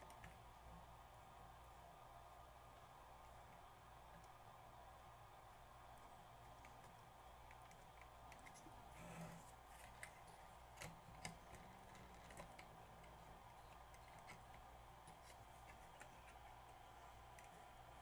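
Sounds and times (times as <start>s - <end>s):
low room hum: 0.0s - 18.0s
plastic mechanism clicks and rubbing: 9.7s - 16.5s.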